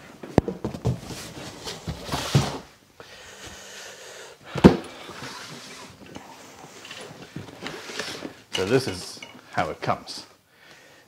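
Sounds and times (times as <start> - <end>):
cardboard rustling and scraping: 0.4 - 2.7, 4.6 - 8.9.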